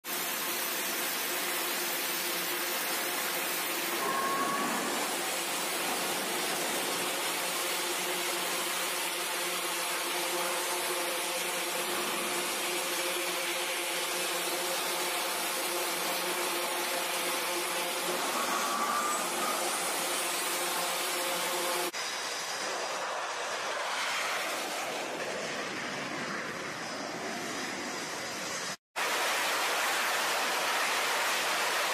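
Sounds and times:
jet engines whining: 0:02.8 - 0:10.0, 0:17.0 - 0:28.8
short rising whistle: 0:03.9 - 0:07.1, 0:18.2 - 0:20.4.

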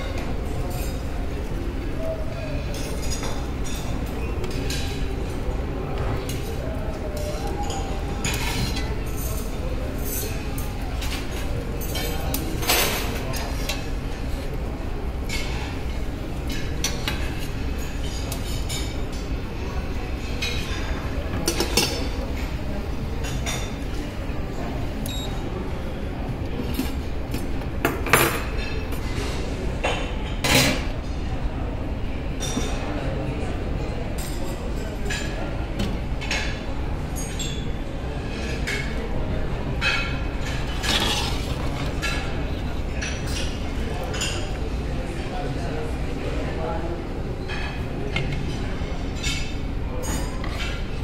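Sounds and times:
tableware clinking: 0:02.0 - 0:14.2, 0:27.8 - 0:30.8, 0:36.2 - 0:44.6.

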